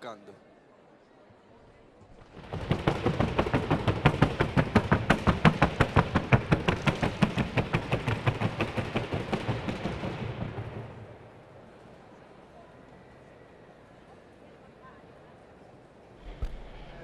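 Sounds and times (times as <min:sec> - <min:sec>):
horse hooves on wooden board: 0:02.3 - 0:10.7.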